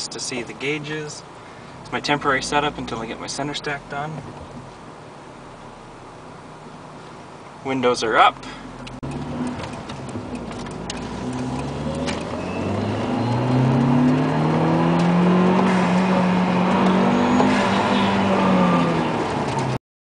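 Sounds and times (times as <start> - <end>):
car engine accelerating: 1.8 - 7.2, 8.4 - 19.8.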